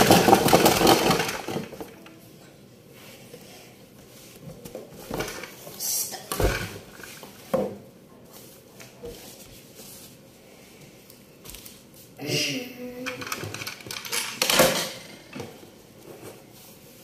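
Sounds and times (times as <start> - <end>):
handling knocks and rustles: 4.0 - 10.2.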